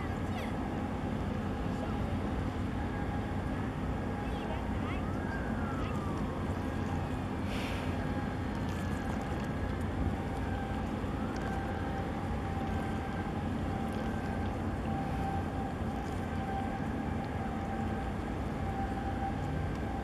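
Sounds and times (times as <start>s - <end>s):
boat engine rumble: 0.0s - 20.0s.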